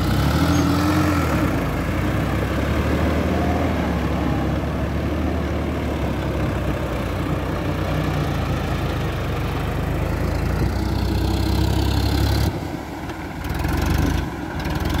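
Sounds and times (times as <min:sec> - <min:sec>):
tractor diesel engine running: 0:00.0 - 0:15.0.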